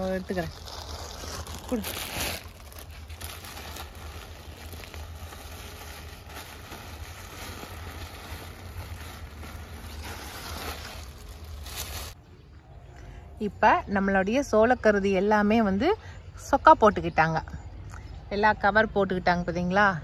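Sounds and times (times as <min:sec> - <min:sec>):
leaves and covers rustling: 0:00.0 - 0:12.2.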